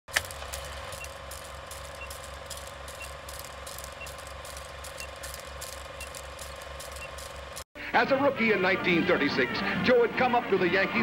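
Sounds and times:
crackles and pops of worn film: 0.1 - 7.6
film projector clatter: 0.1 - 7.7.

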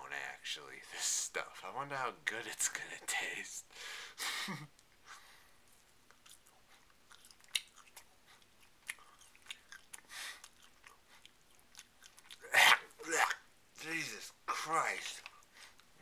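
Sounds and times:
man chewing and crunching: 5.7 - 13.2, 15.0 - 16.0.

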